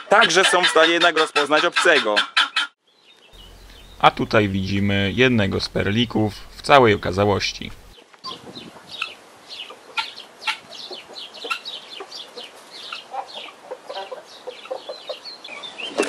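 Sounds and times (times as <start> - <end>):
poultry clucking and chirping: 0.0 - 2.7, 7.8 - 16.0.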